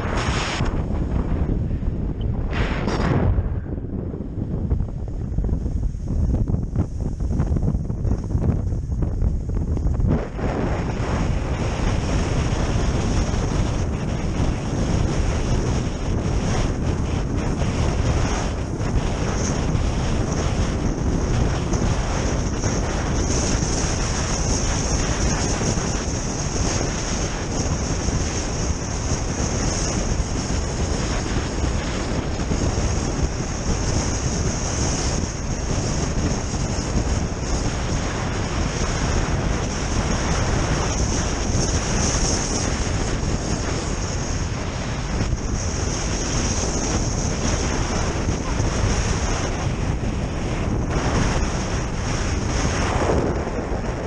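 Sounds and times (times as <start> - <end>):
skis hissing over snow: 0.0 - 1.2
wind rushing over microphone: 0.0 - 54.0.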